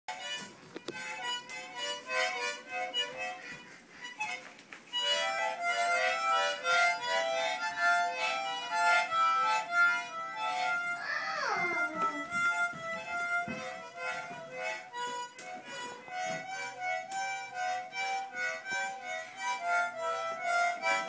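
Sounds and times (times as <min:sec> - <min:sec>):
toy harmonicas playing chords: 0:00.1 - 0:21.0.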